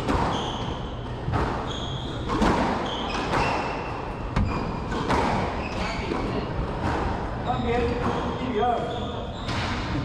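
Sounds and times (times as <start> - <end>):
squash ball hitting walls: 0.0 - 8.6
shoes squeaking on court: 0.1 - 0.9, 1.6 - 6.4, 7.4 - 9.7.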